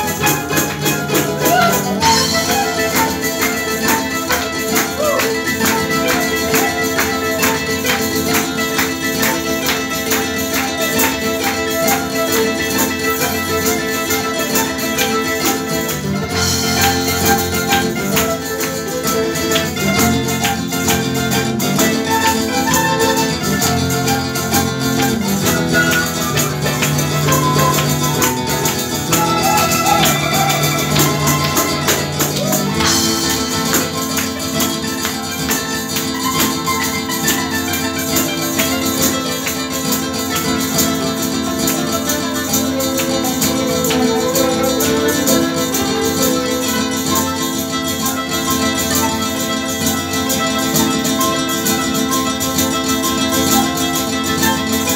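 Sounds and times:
flute: 0.0 - 54.9
mandolin: 0.0 - 54.9
plucked guitar: 0.0 - 54.9
tambourine beat: 27.4 - 34.6.

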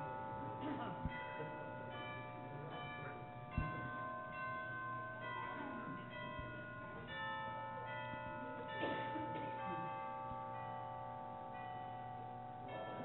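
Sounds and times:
bell-like chimes ringing: 0.0 - 13.0
soft thump: 3.6 - 3.9.

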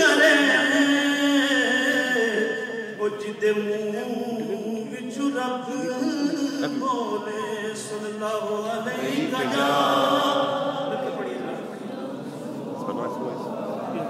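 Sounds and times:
man singing into a microphone: 0.0 - 10.6.

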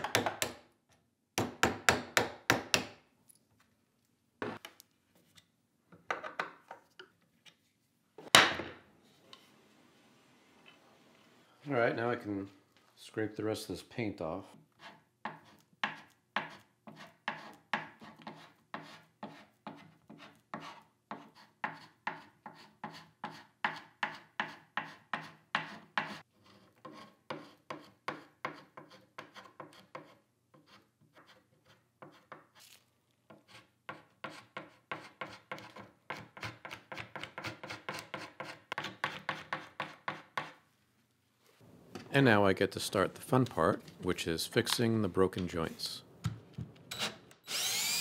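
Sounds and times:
paint scraper rasping on wood: 14.7 - 32.6, 33.3 - 40.6.

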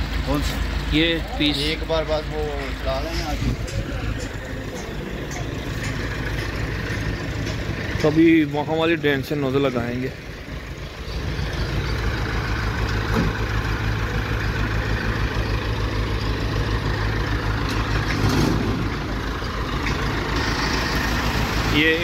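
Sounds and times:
truck engine rumbling: 0.0 - 22.0.

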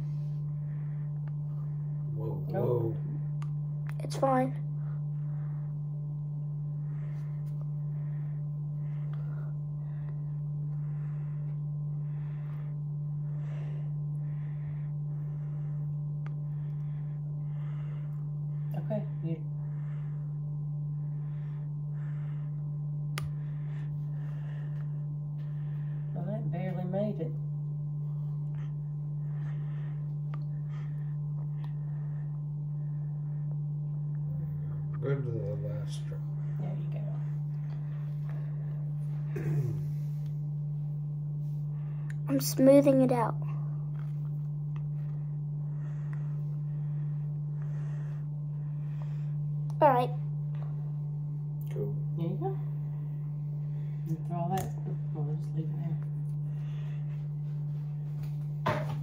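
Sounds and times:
person breathing softly: 0.0 - 2.1, 6.6 - 26.2, 28.0 - 35.0, 43.4 - 51.3, 56.0 - 58.5
low electrical hum: 0.0 - 59.0.

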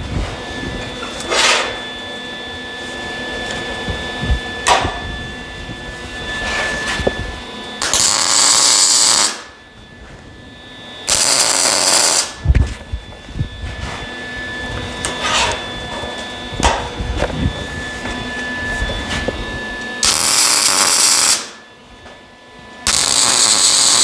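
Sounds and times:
welding arc crackling: 7.8 - 9.5, 11.0 - 12.4, 20.0 - 21.6, 22.8 - 24.0.

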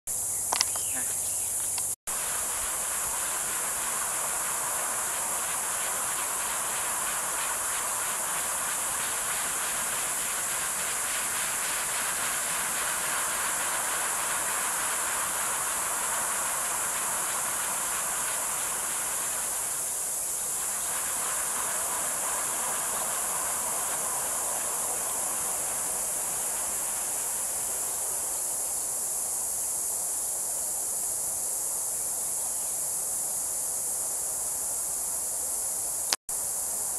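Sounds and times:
constant high hiss: 0.1 - 36.9
wind turbine whooshing: 2.2 - 27.8.

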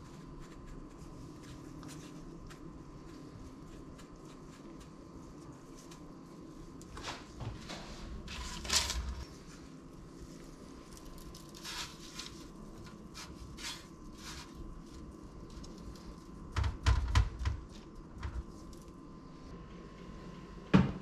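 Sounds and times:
soft scraping of crumbs: 0.0 - 16.5.

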